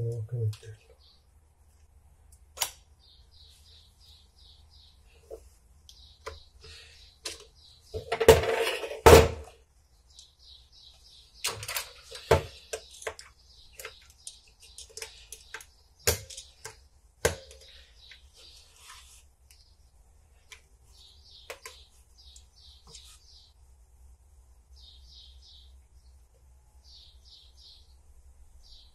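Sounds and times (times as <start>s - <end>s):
small metal parts clicking and knocking: 11.4s - 17.7s.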